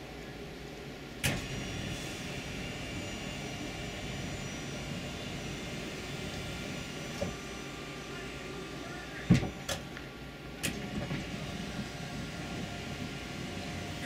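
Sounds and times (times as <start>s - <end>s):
electric motor whining: 1.3s - 10.0s.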